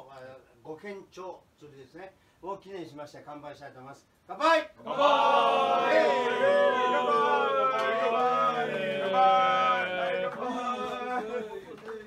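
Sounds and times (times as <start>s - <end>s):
crowd shouting a toast: 4.8s - 11.5s.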